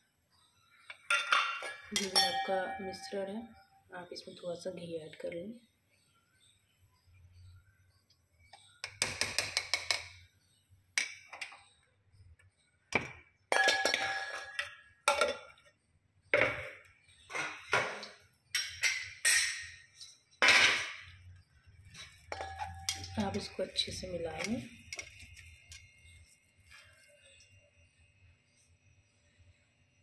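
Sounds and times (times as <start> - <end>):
spoon clinking on steel vessels: 0.9 - 3.3, 13.5 - 15.7, 17.3 - 21.2, 21.8 - 26.8.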